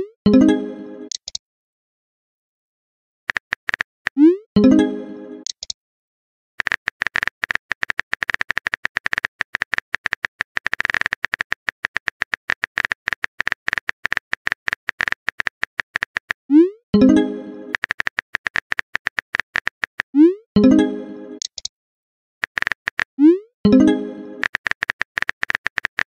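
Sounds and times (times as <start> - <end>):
keyboard typing clicks: 1.1 - 1.4, 3.3 - 4.3, 5.4 - 5.8, 6.6 - 16.4, 17.0 - 20.1, 21.4 - 21.7, 23.7 - 26.0.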